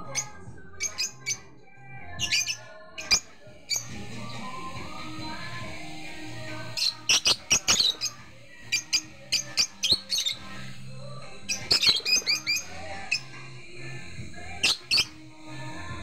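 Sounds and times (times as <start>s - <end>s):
bird chirping shrilly: 6.5s - 10.8s, 11.4s - 13.4s, 14.4s - 15.2s.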